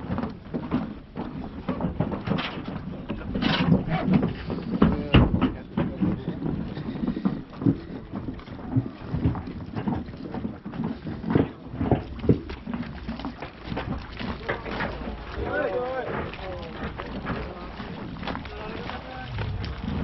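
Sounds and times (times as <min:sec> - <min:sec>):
knocks and bumps in a boat: 0:00.0 - 0:20.0
background voices: 0:14.3 - 0:20.0.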